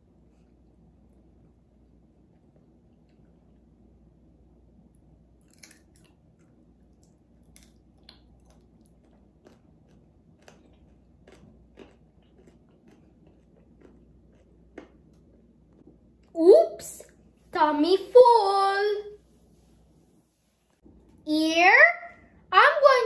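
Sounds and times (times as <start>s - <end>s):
chewing crunchy food: 5.4s - 16.3s.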